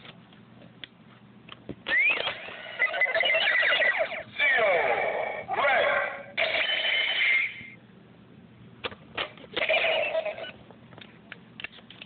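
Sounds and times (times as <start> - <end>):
electronic toy sound effects: 1.9 - 7.8, 9.6 - 10.6.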